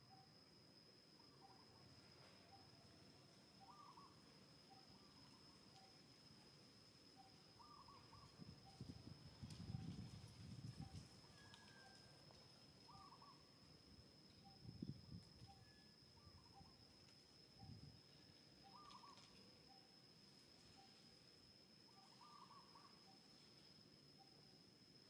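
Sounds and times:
curling bird calls: 3.6 - 4.2, 7.6 - 8.8, 12.9 - 13.4, 18.6 - 19.3, 21.9 - 22.9
wind on microphone rumbles: 8.4 - 11.0.

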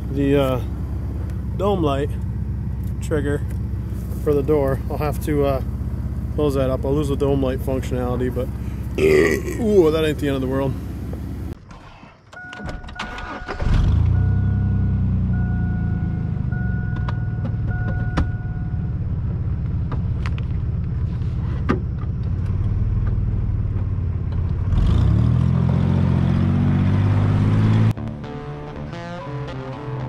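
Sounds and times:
car engine starting and idling: 0.0 - 11.6, 12.5 - 24.8
engine revving: 13.2 - 16.6, 24.6 - 28.0
two-tone warning chime: 14.2 - 18.8.

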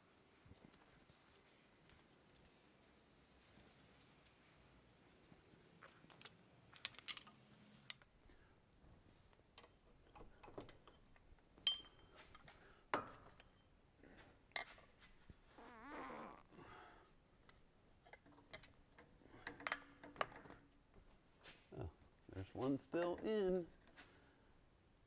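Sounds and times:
sharp ringing metal clink: 11.7 - 12.1.

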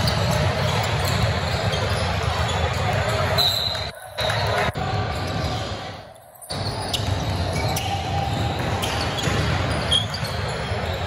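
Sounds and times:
basketball bouncing on court: 0.0 - 3.9, 6.5 - 11.0
shoe squeaks: 0.0 - 4.4, 6.4 - 11.0
game crowd noise: 0.0 - 11.0.

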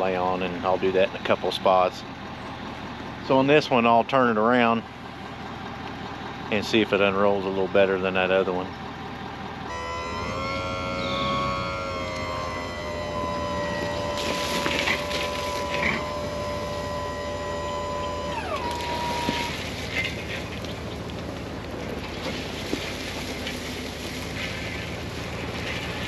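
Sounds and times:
steady mechanical whine: 6.5 - 26.0
bursts of rushing noise: 10.1 - 21.4.

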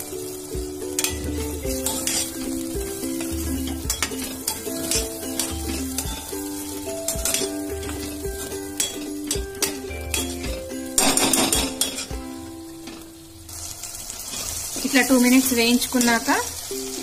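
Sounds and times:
background music with bass: 0.0 - 13.3
food sizzling in hot oil: 0.0 - 17.0
steel spoon scraping and clinking: 0.9 - 12.1.

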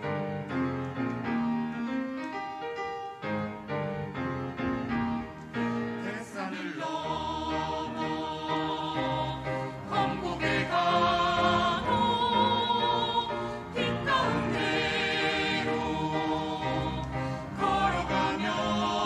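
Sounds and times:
keyboard accompaniment: 0.0 - 19.0
choir singing a hymn: 5.6 - 19.0.

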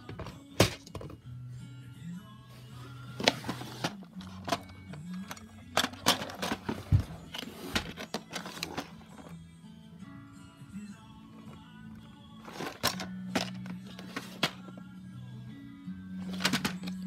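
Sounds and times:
plastic drawers knocking and clattering: 0.0 - 1.2, 5.8 - 8.9, 16.3 - 17.0
quiet background music: 0.0 - 17.0.

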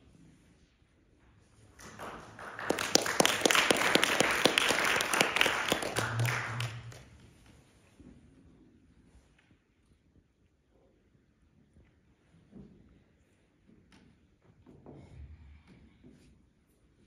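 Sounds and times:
audience applauding: 1.7 - 7.2.

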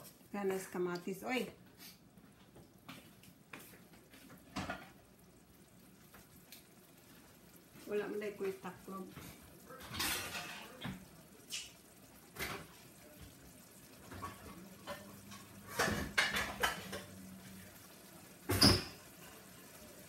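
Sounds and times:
pots and pans clanking: 4.4 - 5.0, 9.1 - 12.8, 13.5 - 19.8.

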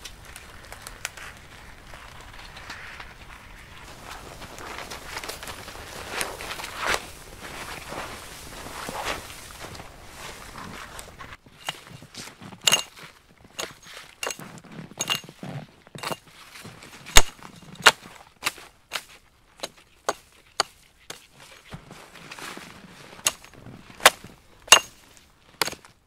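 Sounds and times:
hatchet chopping wood: 12.7 - 12.9, 16.0 - 16.2, 17.2 - 21.2, 23.3 - 24.9, 25.6 - 25.8.

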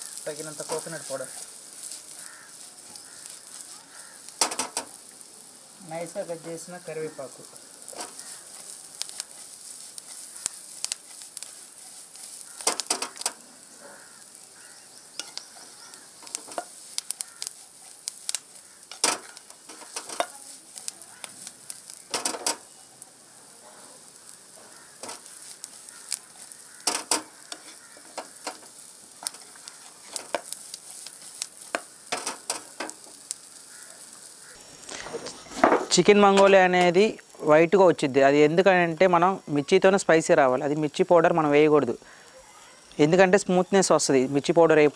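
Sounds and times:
chicken sizzling in frying pan: 0.0 - 44.9
wooden spatula scraping pan: 7.8 - 14.3, 15.2 - 20.8, 24.7 - 33.4.

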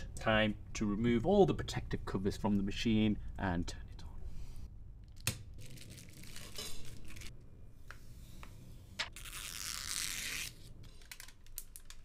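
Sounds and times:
plastic film peeling and crinkling: 5.1 - 7.3, 9.1 - 12.0.

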